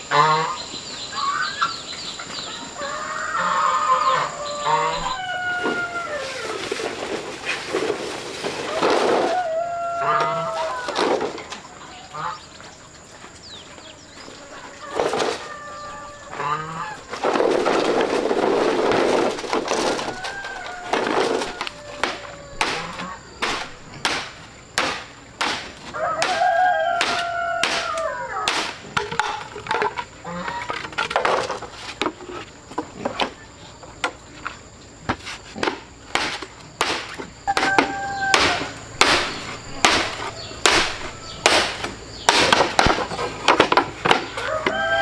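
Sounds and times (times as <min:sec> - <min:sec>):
chicken calling: 0:00.0 - 0:06.9, 0:08.5 - 0:12.6, 0:14.4 - 0:17.2, 0:19.6 - 0:23.9, 0:26.0 - 0:28.5, 0:37.4 - 0:42.3, 0:44.3 - 0:45.0
bamboo being chopped: 0:20.9 - 0:29.4, 0:35.1 - 0:44.8.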